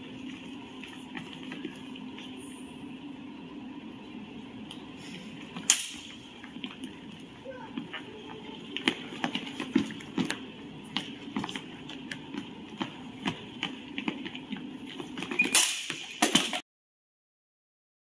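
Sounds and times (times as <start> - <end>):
fencers' footwork taps: 7.8 - 16.5
swords striking: 15.5 - 16.2.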